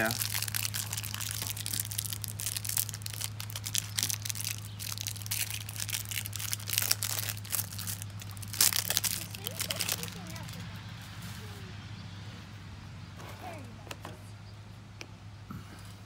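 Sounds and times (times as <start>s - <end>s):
packaging crinkling and tearing: 0.0s - 10.6s.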